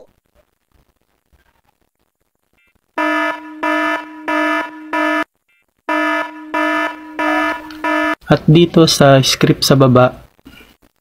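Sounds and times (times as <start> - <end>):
electronic alarm pulsing buzz: 3.0 - 5.3, 5.9 - 8.2.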